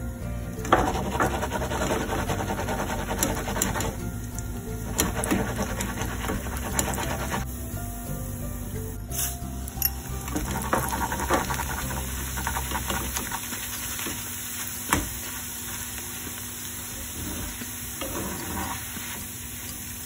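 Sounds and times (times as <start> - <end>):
deep-frying sizzle: 0.0 - 20.0
wire strainer scraping pan: 0.6 - 4.0, 4.8 - 7.5, 10.2 - 14.2.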